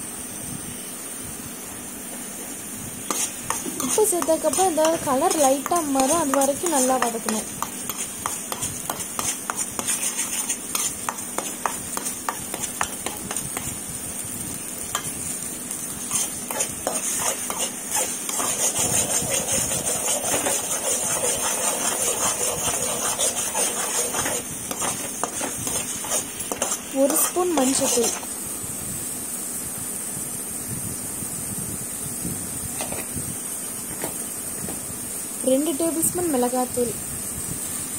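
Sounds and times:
paste frying: 0:00.8 - 0:29.6
ladle scraping metal pan: 0:03.1 - 0:13.4, 0:16.1 - 0:28.2.

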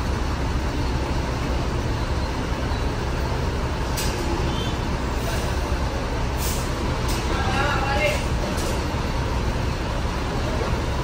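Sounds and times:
bus engine rumbling: 0:00.0 - 0:11.0
air brake hiss: 0:06.3 - 0:07.2.

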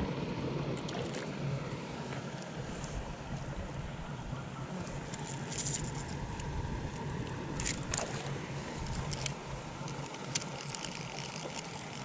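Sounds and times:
low steady background rumble: 0:00.0 - 0:12.0
fishing reel clicking and rubbing: 0:08.8 - 0:12.0.

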